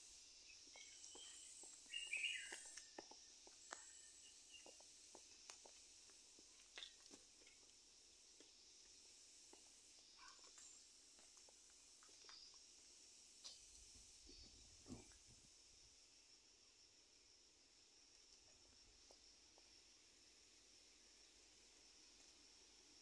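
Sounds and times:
bird chirp: 0.0 - 5.3
steady high hiss: 0.0 - 23.0
light footsteps on concrete: 0.6 - 13.6.

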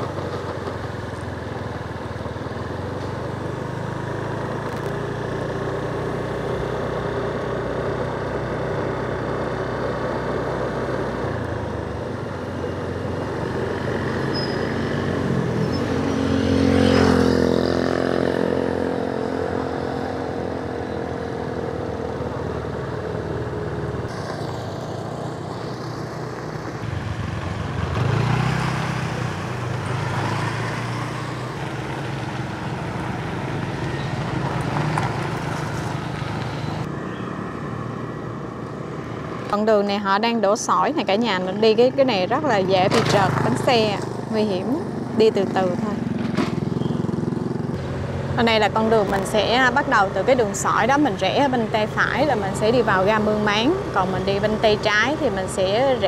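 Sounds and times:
vehicle passing by: 13.3 - 39.6
motorbike engine running: 41.4 - 56.0.

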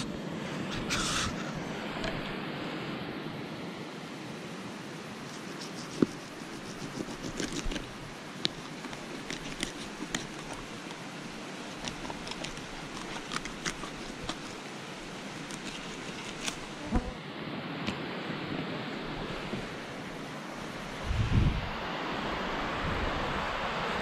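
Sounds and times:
outdoor hiss: 0.0 - 2.8
knife clicking and scraping bones: 5.3 - 11.0, 11.7 - 14.6, 15.4 - 16.7.

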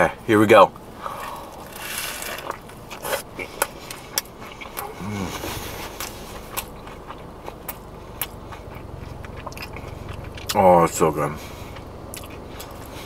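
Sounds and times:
crunchy chewing: 1.0 - 13.0
person humming mm: 4.8 - 5.8.

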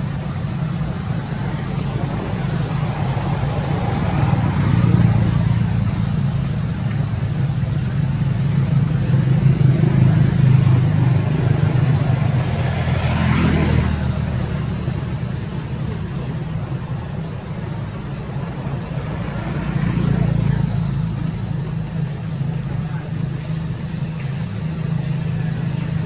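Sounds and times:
vehicle engine rumble: 0.0 - 26.0.

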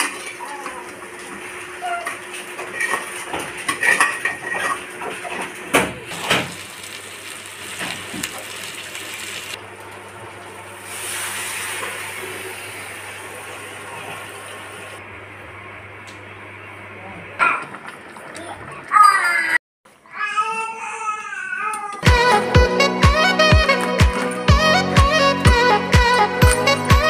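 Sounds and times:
crab frying in oil: 5.6 - 15.0.

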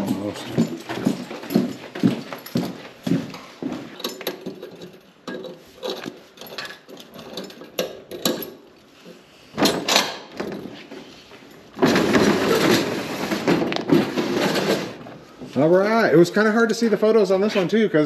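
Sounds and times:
keys jingling: 0.0 - 8.7
padlock clicking and clattering: 4.0 - 8.6
roll-up door rattling: 11.8 - 15.0.

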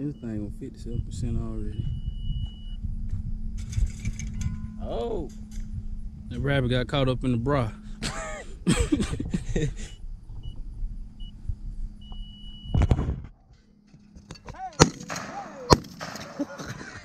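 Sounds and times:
shotgun shots: 14.7 - 16.6.

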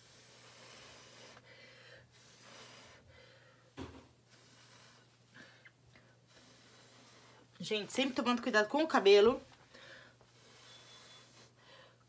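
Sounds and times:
puffs of mouth-blown breath: 0.0 - 3.7, 4.3 - 7.5, 9.7 - 12.0.

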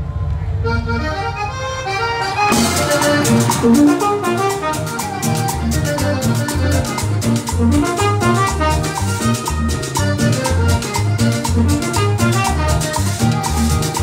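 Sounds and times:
tropical band playing: 0.6 - 14.0
brass melody line: 0.7 - 14.0
steady percussion beat: 2.5 - 14.0.

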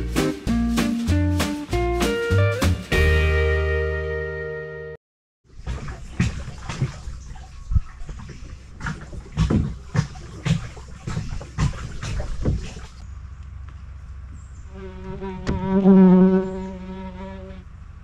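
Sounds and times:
water slapping boat hull: 5.5 - 13.0.

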